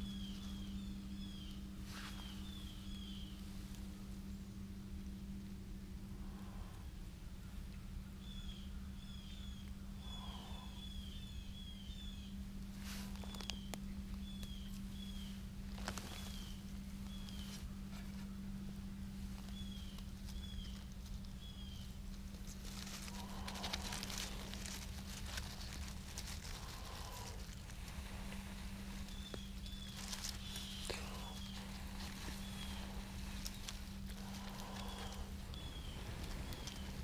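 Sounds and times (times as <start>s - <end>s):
bird chirping: 0.0s - 3.5s, 8.1s - 12.4s, 13.1s - 17.6s, 19.4s - 22.0s, 23.0s - 37.0s
dry tinder crackling and rustling: 0.0s - 5.5s, 12.4s - 37.0s.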